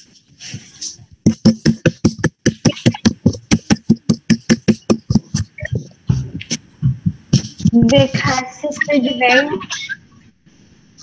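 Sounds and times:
rapid sharp percussive hits: 1.2s - 8.2s.

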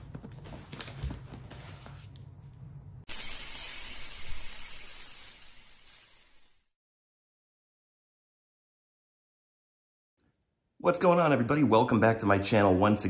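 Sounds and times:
spraying hiss whoosh: 3.1s - 6.7s.

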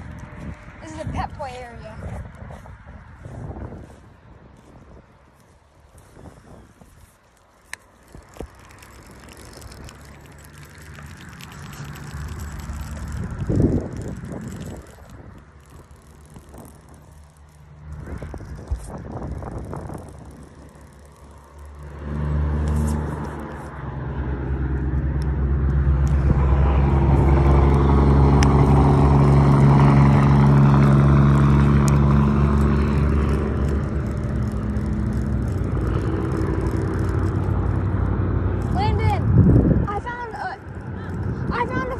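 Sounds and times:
truck engine driving by: 8.4s - 41.9s.

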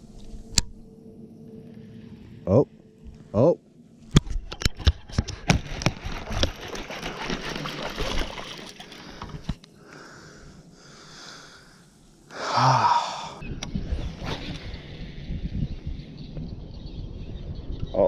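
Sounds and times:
person breathing hard: 8.9s - 13.4s
loud gasping exhale: 9.1s - 13.4s.

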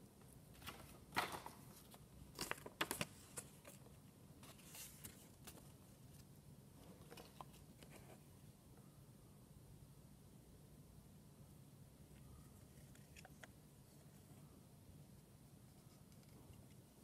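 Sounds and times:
paper rustling and crinkling: 0.5s - 8.3s.

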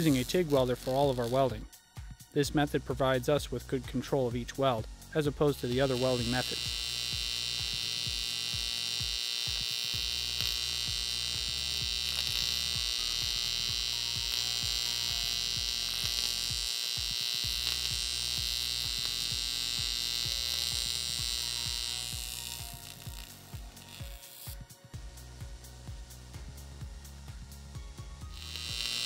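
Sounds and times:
welding arc buzzing: 0.0s - 1.8s, 4.6s - 24.8s, 28.2s - 29.0s
background music with bass beat: 0.0s - 8.8s, 9.6s - 29.0s.

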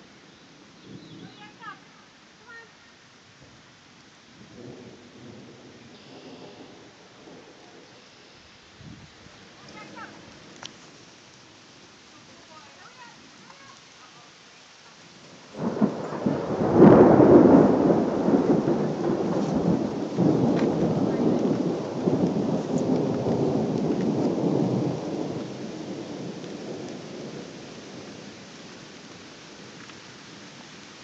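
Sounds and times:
thunder rumbling: 4.4s - 8.0s, 8.8s - 11.2s, 15.3s - 30.6s.

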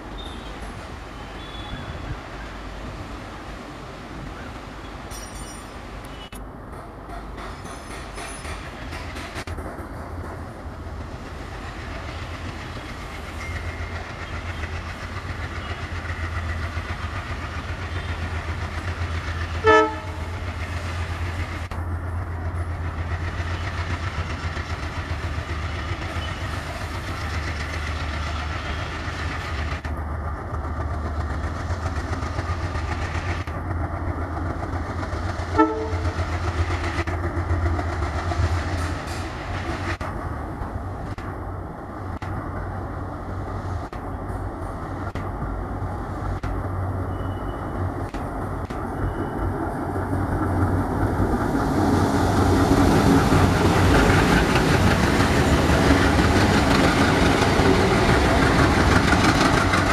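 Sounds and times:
diesel locomotive engines droning: 0.0s - 59.9s
train horn blasts: 19.6s - 20.4s, 35.5s - 36.2s.

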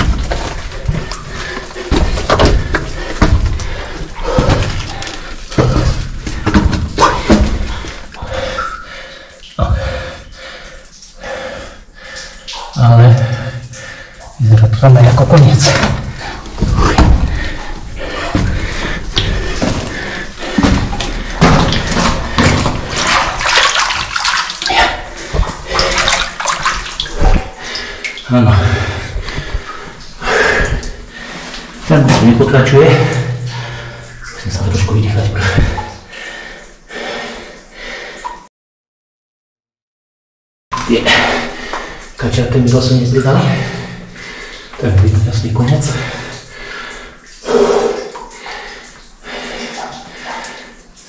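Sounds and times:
person crawling scuffs and knocks: 0.0s - 8.2s, 15.6s - 27.6s
water splashing and sloshing: 0.0s - 38.5s, 40.7s - 51.0s.

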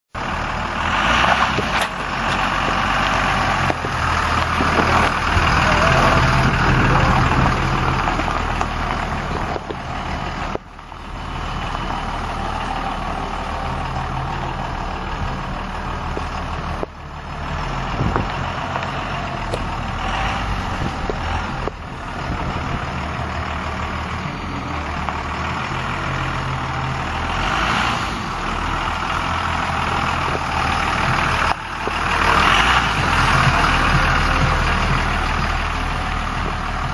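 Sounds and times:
truck engine running: 0.1s - 36.9s.

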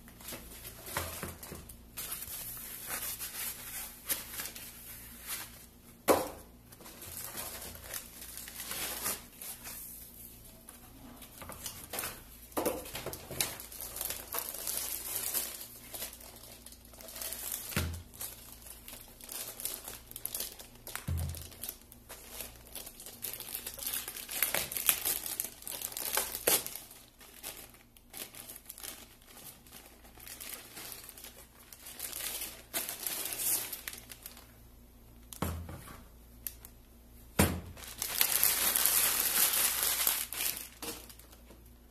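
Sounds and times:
plastic packaging crinkling: 6.7s - 10.1s, 11.2s - 34.6s, 37.7s - 41.9s.

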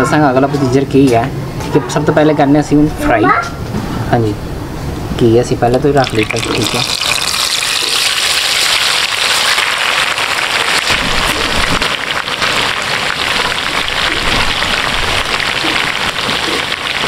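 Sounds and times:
hot oil sizzling and crackling: 5.8s - 17.0s.

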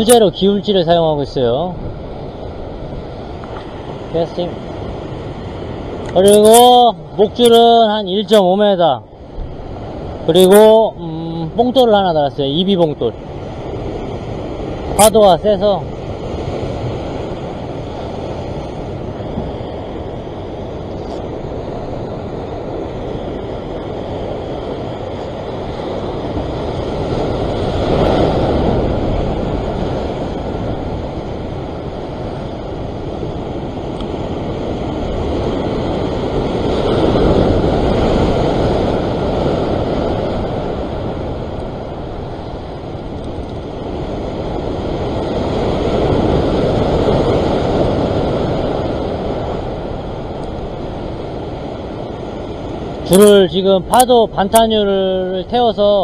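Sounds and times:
ocean surf in rough seas: 0.0s - 56.0s
wind buffeting microphone: 0.0s - 56.0s.

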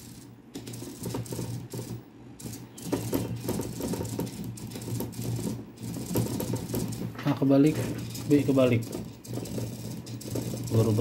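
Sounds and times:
servos clicking and rattling: 0.0s - 11.0s
servo motors buzzing: 7.6s - 11.0s.

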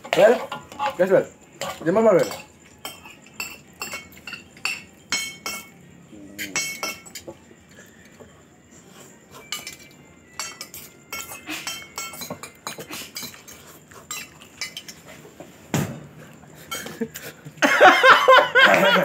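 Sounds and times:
cutlery clinking on a plate: 0.0s - 5.8s, 6.4s - 8.3s, 9.3s - 15.2s, 16.6s - 17.2s
loud thump: 15.7s - 16.1s.

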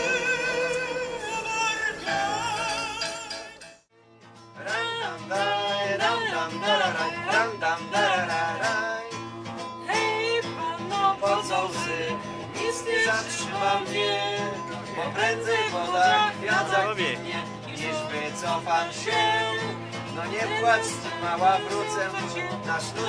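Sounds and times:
country music with plucked strings: 0.0s - 23.0s.

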